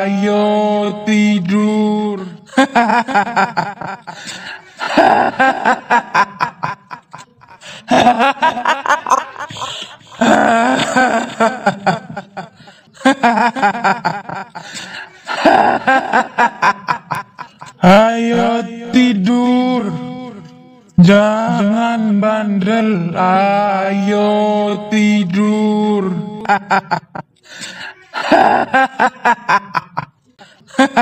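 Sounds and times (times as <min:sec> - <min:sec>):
woman's high-pitched ghostly cackle: 0:02.5 - 0:14.6, 0:28.1 - 0:30.1.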